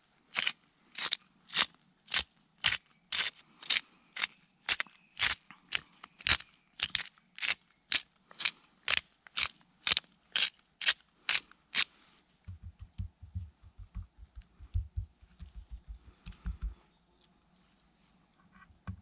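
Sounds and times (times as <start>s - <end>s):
soft low thumps on wooden board: 12.5s - 16.8s.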